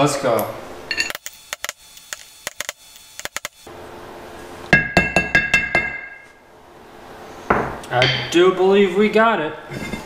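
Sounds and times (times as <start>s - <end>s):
hammer striking metal: 4.7s - 6.4s.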